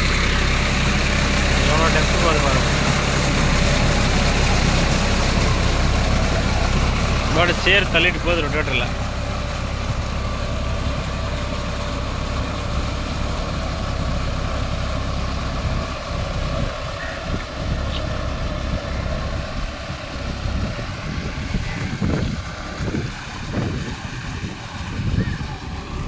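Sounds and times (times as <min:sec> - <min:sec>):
tractor diesel engine running: 0:00.0 - 0:26.0
wind rumbling on microphone: 0:15.2 - 0:26.0.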